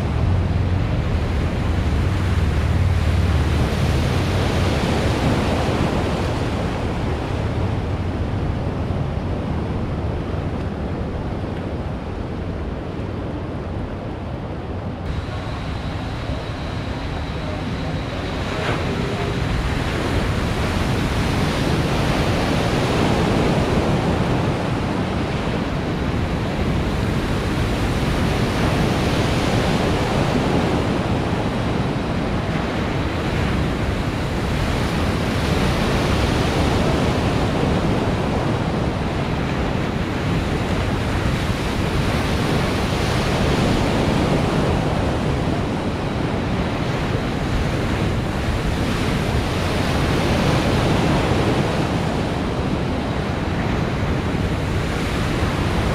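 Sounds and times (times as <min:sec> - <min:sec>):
waves breaking and washing: 0:00.0 - 0:55.9
wind on microphone: 0:00.0 - 0:55.9.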